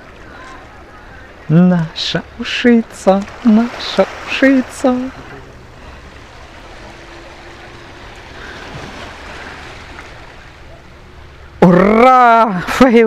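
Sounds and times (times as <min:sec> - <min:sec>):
waves washing on pebble shore: 0:03.0 - 0:05.4.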